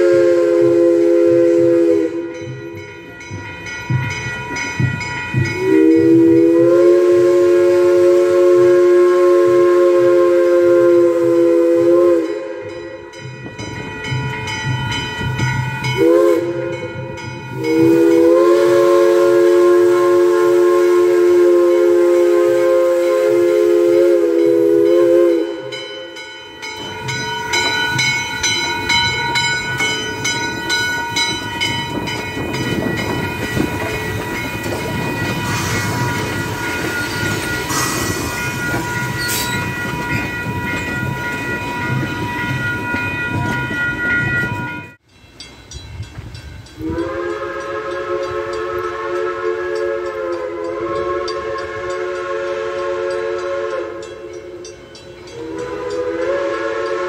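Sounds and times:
steam whistle blast: 0.0 - 2.6, 5.5 - 13.0, 15.8 - 26.3, 35.4 - 39.9, 46.8 - 57.0
crossing bell ringing: 0.0 - 7.2, 11.9 - 19.8, 21.5 - 57.0
steam train rumbling and clanking: 0.0 - 57.0.

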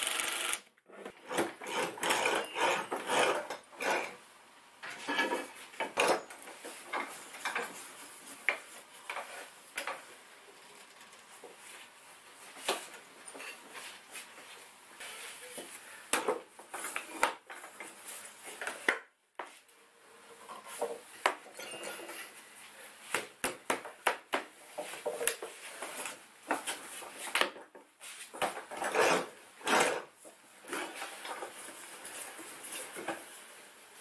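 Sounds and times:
knocks and clatter of hand tools: 4.8 - 7.8.

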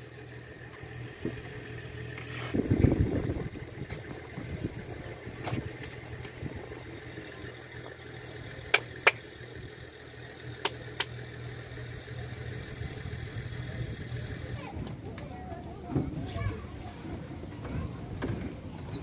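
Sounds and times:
vehicle engine running: 0.0 - 19.0
sharp clicks: 10.6 - 11.2.

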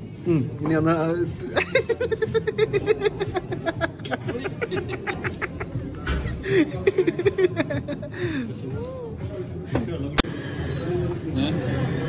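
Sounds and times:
people laughing: 1.4 - 8.9.

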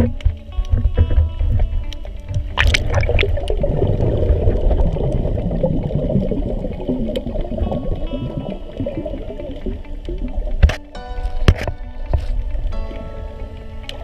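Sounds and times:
underwater churn and gurgling: 0.0 - 12.9
short water splash: 2.6 - 5.3.

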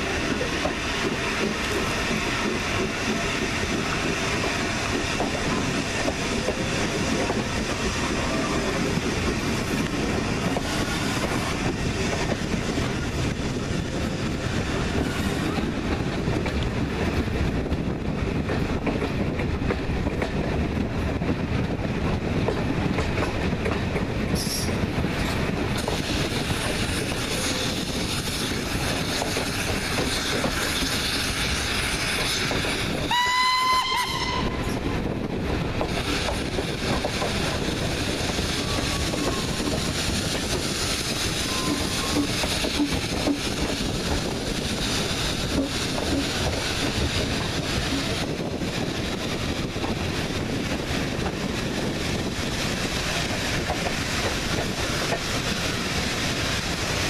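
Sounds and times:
train wheels on rails: 0.0 - 57.0
steam whistle: 33.1 - 34.6.

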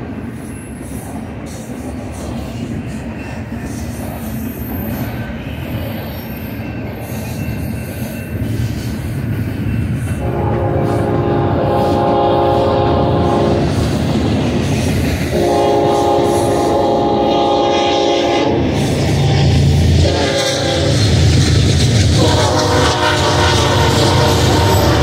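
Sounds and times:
freight train rumbling on rails: 0.0 - 25.0
locomotive air horn blasts: 10.2 - 13.7, 15.3 - 21.3, 22.1 - 25.0.

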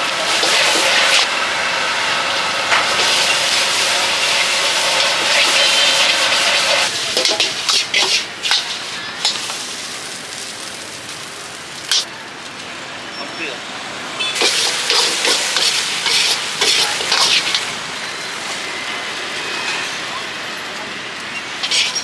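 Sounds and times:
food sizzling in a wok: 0.0 - 12.9, 14.2 - 22.0
metal clanks on wok: 7.1 - 9.6, 11.9 - 12.1, 14.4 - 17.7, 21.6 - 22.0.

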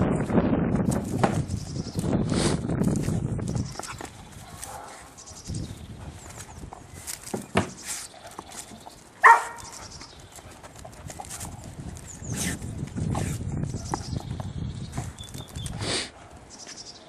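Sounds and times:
dog sniffing and snuffling: 1.0 - 16.4
dog yelping: 9.2 - 9.9.

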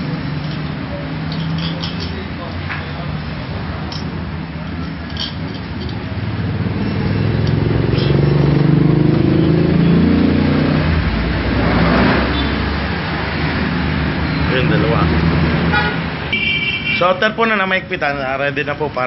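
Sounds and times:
vehicle engine passing by: 6.0 - 16.3.

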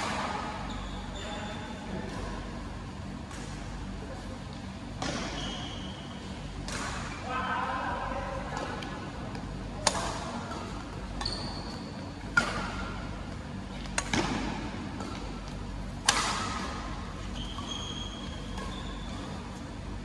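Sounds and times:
shoes squeaking on court floor: 0.5 - 2.4, 5.0 - 6.4, 10.5 - 12.8, 16.8 - 20.0
racket hitting shuttlecock: 6.6 - 7.1, 9.8 - 11.2, 12.2 - 13.0, 13.8 - 19.6.

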